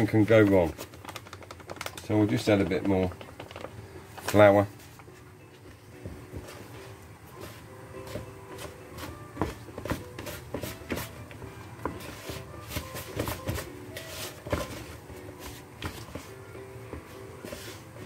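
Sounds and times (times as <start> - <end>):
fingers knocking against bowl: 0.9 - 3.8
hands kneading dough: 6.0 - 18.0.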